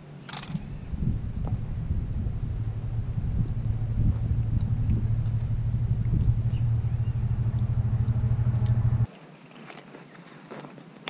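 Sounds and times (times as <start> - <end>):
loud low rumble: 0.6 - 9.1.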